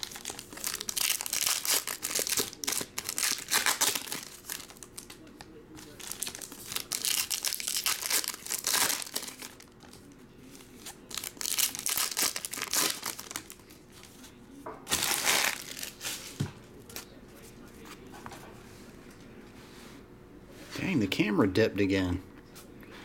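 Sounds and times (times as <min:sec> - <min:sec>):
foil wrappers crinkling and tearing: 0:00.0 - 0:14.2, 0:14.9 - 0:17.1.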